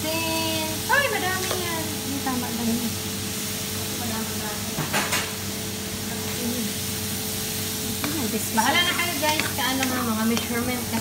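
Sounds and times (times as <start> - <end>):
food sizzling in a frying pan: 0.0 - 11.0
wooden spoon stirring: 8.6 - 11.0.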